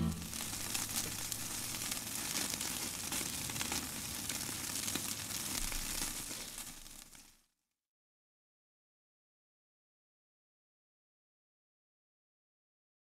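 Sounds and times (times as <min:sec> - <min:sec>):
crackling sizzle with pops: 0:00.0 - 0:07.6.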